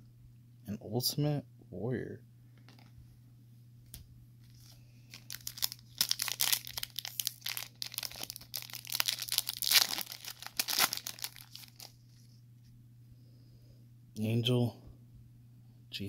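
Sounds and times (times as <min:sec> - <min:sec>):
foil wrapper tearing and crinkling: 0:04.5 - 0:12.0.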